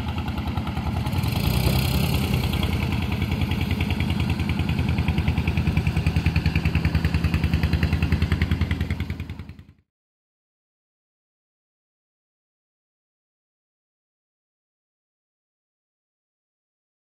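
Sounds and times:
boat engine chugging: 0:00.0 - 0:09.8.

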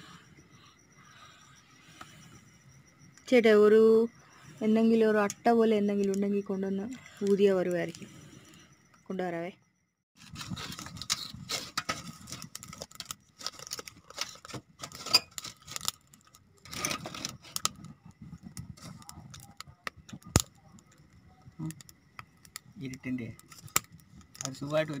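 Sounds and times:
crinkling and rustling: 0:10.2 - 0:20.9.

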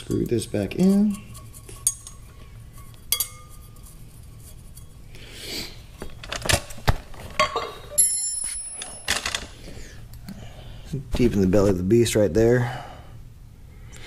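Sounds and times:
metal scrape: 0:00.0 - 0:05.9
metal clinks: 0:03.1 - 0:03.6, 0:07.4 - 0:09.2.

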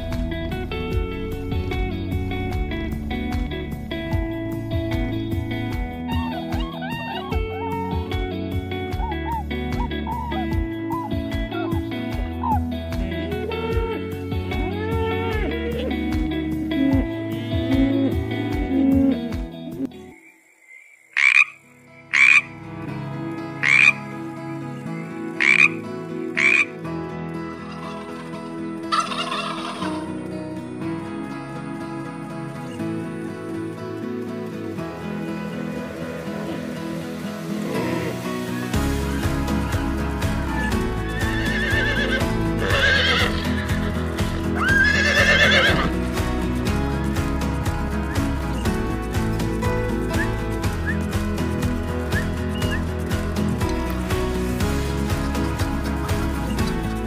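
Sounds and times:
background music with a beat: 0:00.0 - 0:19.9, 0:34.8 - 0:57.0
tree frog croaking: 0:20.1 - 0:22.6, 0:23.6 - 0:24.0, 0:25.4 - 0:25.8, 0:26.4 - 0:26.7
horse whinnying: 0:27.7 - 0:30.1, 0:37.6 - 0:38.7, 0:40.5 - 0:45.9.

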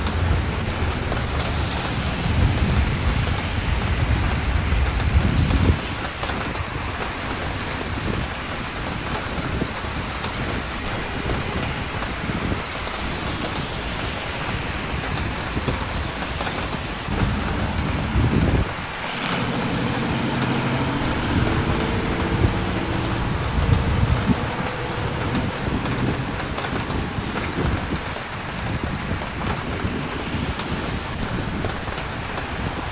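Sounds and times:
rain on a street: 0:00.0 - 0:32.9
traffic rumble: 0:00.0 - 0:32.9
loud low rumble passing: 0:17.1 - 0:27.2.

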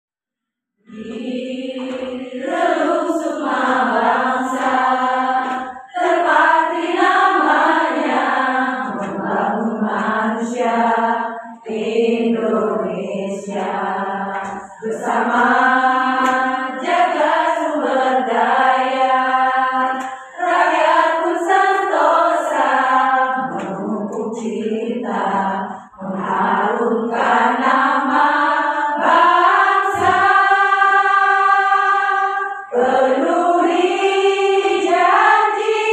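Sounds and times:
choir singing: 0:00.8 - 0:35.9.

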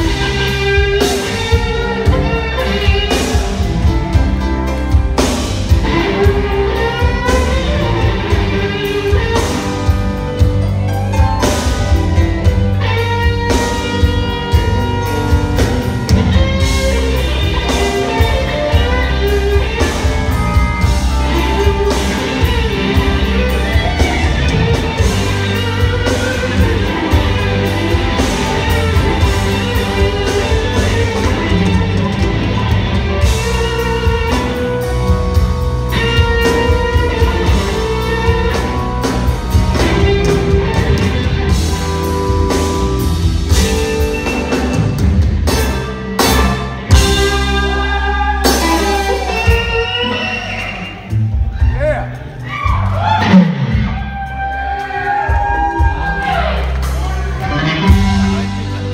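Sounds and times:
drum kit: 0:00.0 - 0:58.9
electric bass: 0:00.0 - 0:58.9
electric guitar lead lines: 0:00.0 - 0:58.9.

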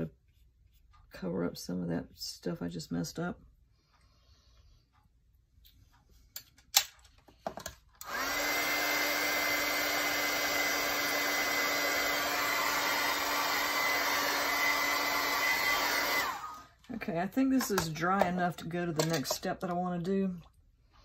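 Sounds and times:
heat tool blowing whir: 0:08.0 - 0:16.7.

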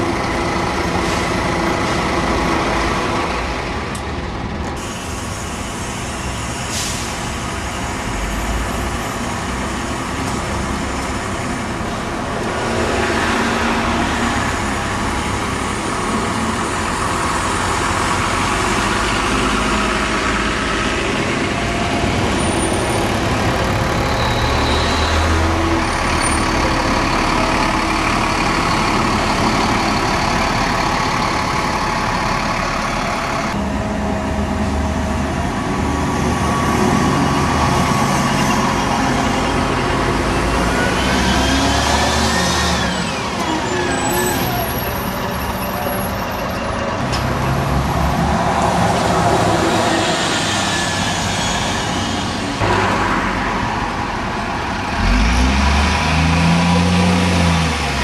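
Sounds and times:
diesel buses passing: 0:00.0 - 0:58.0
road noise: 0:00.0 - 0:58.0.

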